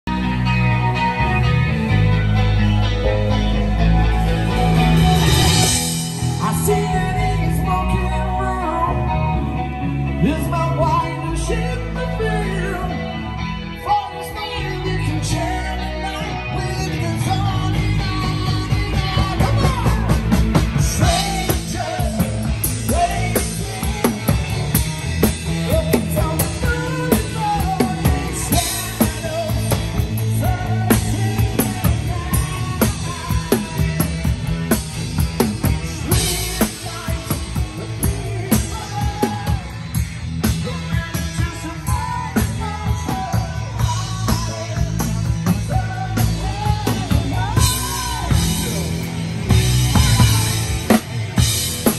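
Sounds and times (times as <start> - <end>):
electric guitars: 0.0 - 51.9
person singing: 2.9 - 51.9
drum kit beat: 3.2 - 8.2, 17.2 - 51.9.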